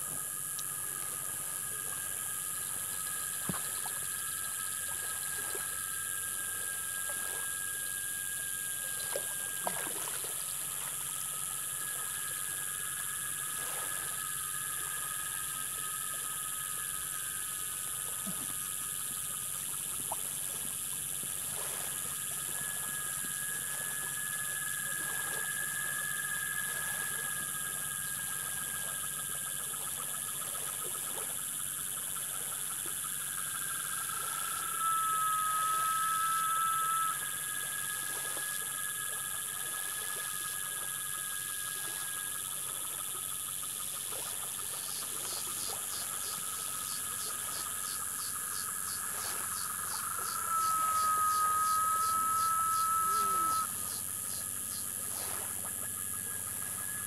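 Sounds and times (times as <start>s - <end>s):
insects buzzing: 0.0s - 57.0s
trilling tones: 49.9s - 53.7s
short falling calls: 50.0s - 53.7s.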